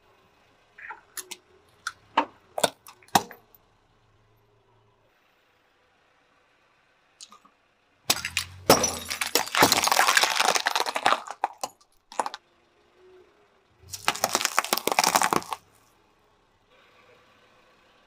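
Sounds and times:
glass flasks cracking and shattering: 8.1 - 12.4, 13.9 - 15.6
tyre crunching over trinkets: 8.1 - 12.4, 13.9 - 15.6.

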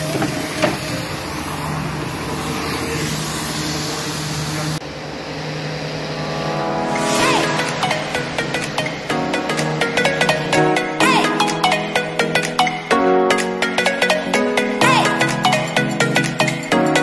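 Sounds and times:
music: 6.0 - 17.0.

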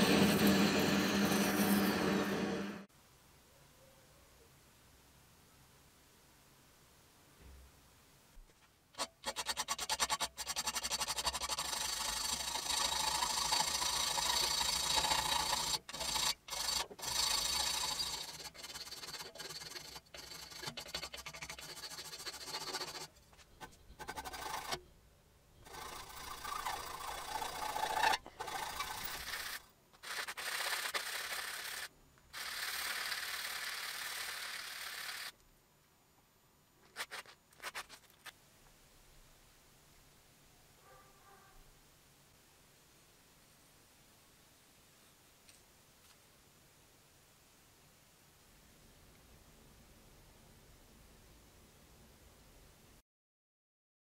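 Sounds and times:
hand file scraping metal: 0.0 - 2.8, 9.0 - 24.9, 25.6 - 34.4.

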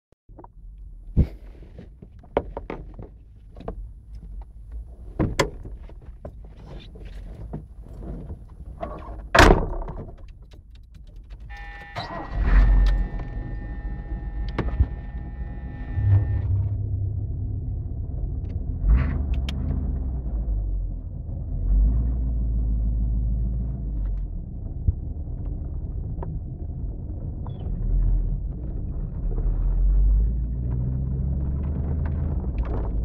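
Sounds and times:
clicks and thunks in car: 0.3 - 12.0, 30.6 - 33.0
car engine rumbling: 0.3 - 33.0
car door thunk: 5.2 - 5.9, 9.3 - 10.2
steady warning tone: 11.5 - 17.0.

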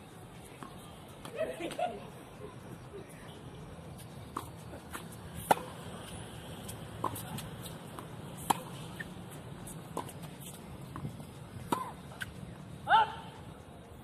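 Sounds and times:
tennis ball bounces: 4.2 - 12.6
rackets hitting tennis ball: 4.3 - 12.4.

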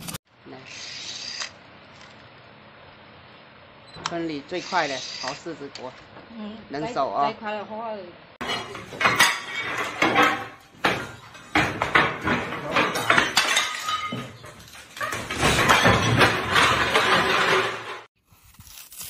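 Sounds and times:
tiles clattering down: 8.4 - 18.1
tiles cracking and clinking: 8.4 - 18.1.

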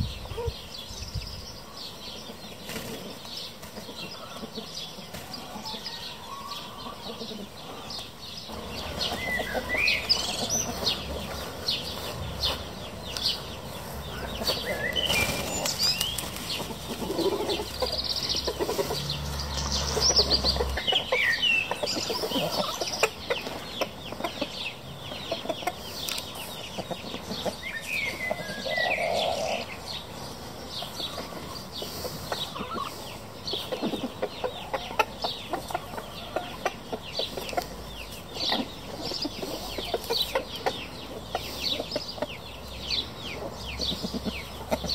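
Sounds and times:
chickens clucking: 0.0 - 44.9
rooster and hens short calls: 4.1 - 7.8.

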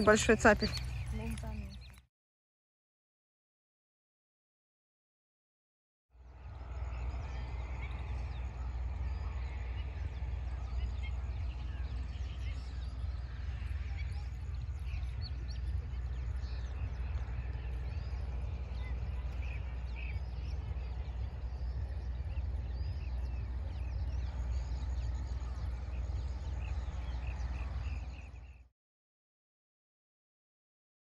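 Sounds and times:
small birds chirping: 0.0 - 2.0, 6.3 - 28.7
steady low rumble: 0.0 - 2.0, 6.2 - 28.7.

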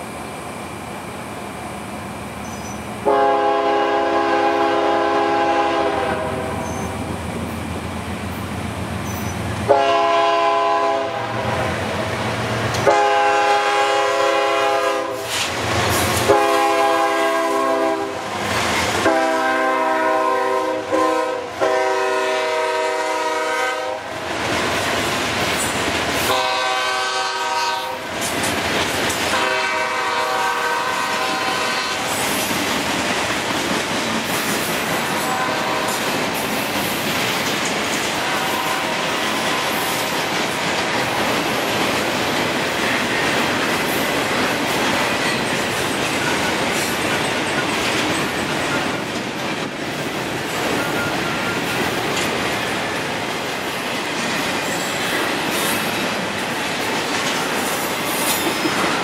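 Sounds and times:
train rumbling past: 0.0 - 59.0
locomotive air horn blasts: 3.0 - 7.0, 9.7 - 11.8, 12.8 - 15.3, 16.2 - 18.3, 19.0 - 24.1, 26.2 - 28.0, 29.3 - 32.2, 35.1 - 36.0, 38.2 - 39.7
wheels clacking over rail joints: 28.1 - 29.8, 31.0 - 59.0.

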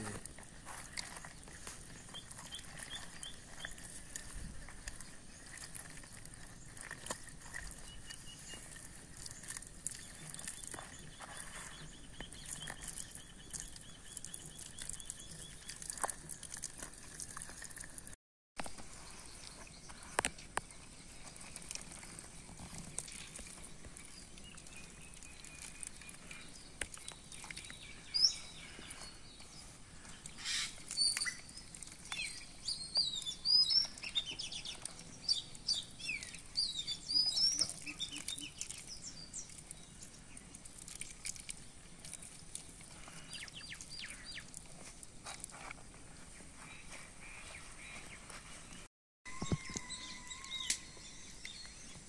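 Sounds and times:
hands squishing paste on chicken: 0.1 - 48.0
birds chirping: 1.0 - 16.5, 22.8 - 40.4, 42.9 - 44.5, 46.4 - 52.0.

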